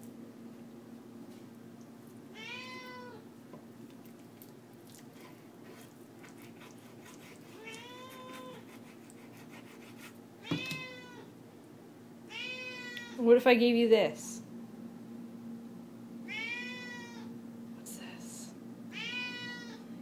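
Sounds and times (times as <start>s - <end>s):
cat meowing: 2.4s - 3.2s, 7.6s - 8.6s, 10.4s - 11.3s, 12.3s - 13.2s, 16.3s - 17.3s, 18.9s - 19.8s.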